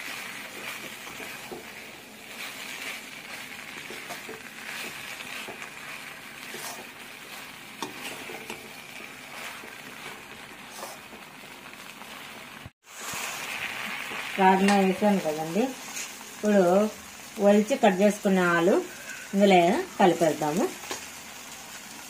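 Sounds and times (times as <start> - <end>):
beans sizzling in a pan: 0.0 - 22.0
metal spoon scraping a pan: 3.6 - 11.2.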